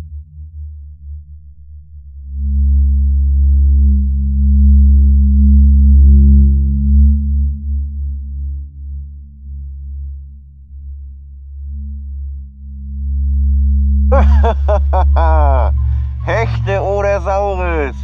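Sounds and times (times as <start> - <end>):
deep low bass drone: 0.0 - 18.0.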